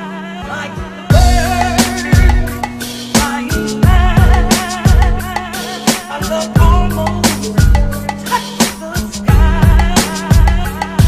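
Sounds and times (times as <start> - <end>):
deep kick drums: 1.1 - 2.6, 3.8 - 5.2, 6.6 - 7.9, 9.3 - 10.6
held bass note: 1.1 - 2.9, 3.8 - 5.4
wavering melody: 1.1 - 8.4.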